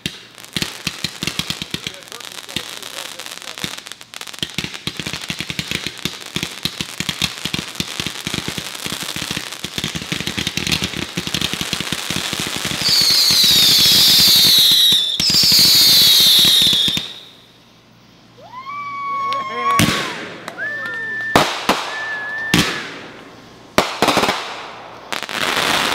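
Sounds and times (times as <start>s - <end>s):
fireworks crackling: 0.0s - 25.9s
shrill firework whistles: 6.7s - 25.9s.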